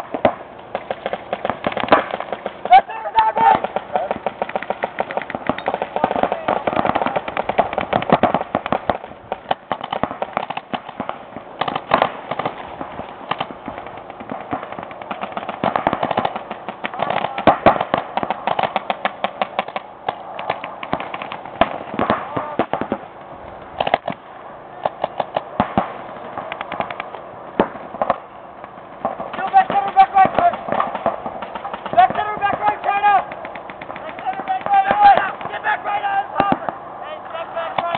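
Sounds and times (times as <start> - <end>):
paintball markers firing: 0.0 - 23.0, 24.8 - 35.8
voices shouting: 2.4 - 7.9, 29.3 - 37.9.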